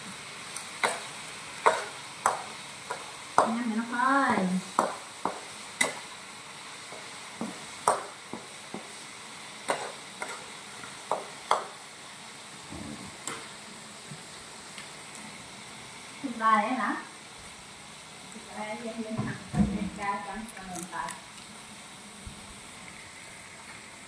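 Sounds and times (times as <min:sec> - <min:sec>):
crunching fried insects: 0:00.0 - 0:12.0, 0:14.6 - 0:23.9
steady background hiss: 0:00.0 - 0:24.0.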